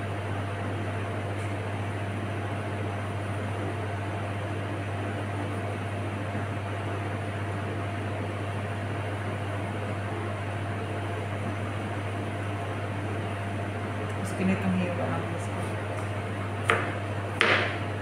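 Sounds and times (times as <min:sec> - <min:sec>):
machinery low drone: 0:00.0 - 0:03.8.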